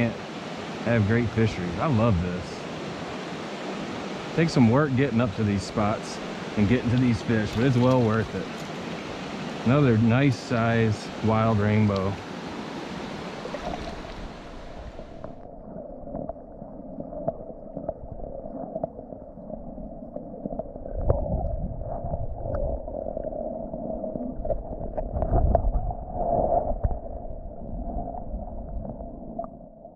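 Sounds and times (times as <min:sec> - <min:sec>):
muffled underwater stream rush: 0:00.0 - 0:29.9
underwater clicks and gurgles: 0:06.6 - 0:08.9, 0:13.0 - 0:29.9.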